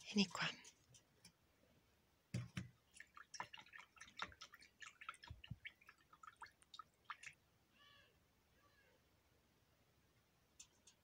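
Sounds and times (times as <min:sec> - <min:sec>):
faint clicks and taps: 0:10.5 - 0:11.0.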